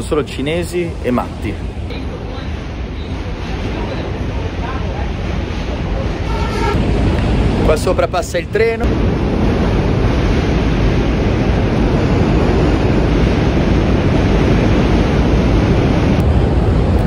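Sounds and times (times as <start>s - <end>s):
subway train rumbling past: 0.0s - 17.0s.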